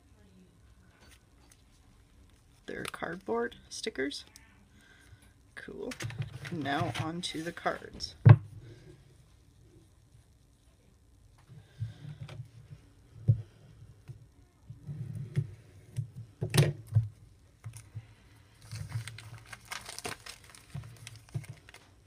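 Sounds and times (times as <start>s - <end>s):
paper rustling and crinkling: 5.9s - 8.1s, 18.5s - 22.0s.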